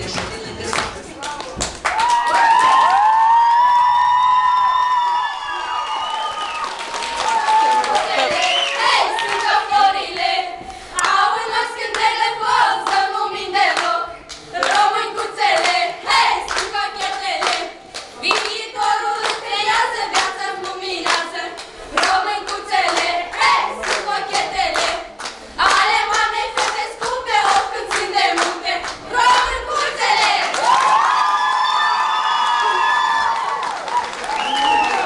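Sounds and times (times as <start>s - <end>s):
group singing folk dance tune: 0.0s - 1.7s, 8.1s - 30.7s
hand-clapping in time: 16.5s - 18.6s, 20.1s - 31.0s, 33.2s - 35.0s.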